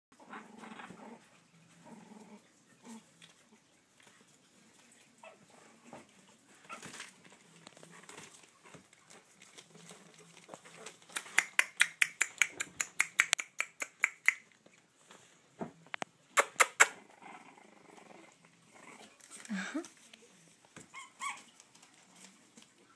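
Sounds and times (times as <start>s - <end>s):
puppies scrabbling on newspaper: 2.6s - 13.2s, 18.7s - 22.9s
fast sharp clicks: 11.0s - 14.4s
puppies whimpering and growling: 16.6s - 19.3s, 20.9s - 22.0s.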